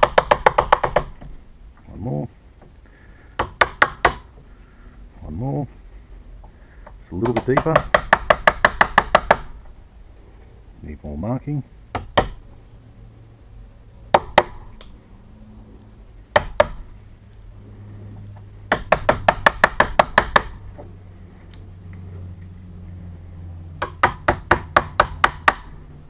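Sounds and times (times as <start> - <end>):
chisel knocking into wood: 0.0 - 1.3, 7.2 - 9.5, 11.9 - 12.4, 18.7 - 20.6, 23.8 - 25.7.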